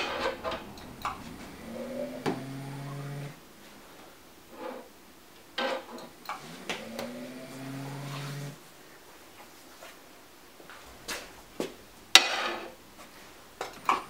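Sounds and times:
pump motor whining: 0.0 - 3.4, 6.3 - 8.6.

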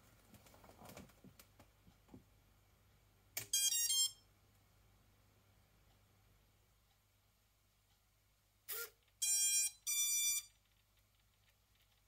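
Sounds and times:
faint ticks and taps: 0.1 - 2.4, 10.5 - 12.0.

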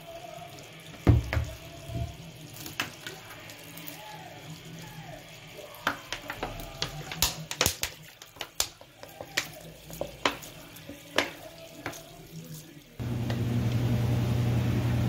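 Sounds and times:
washing machine low hum: 13.0 - 15.0.

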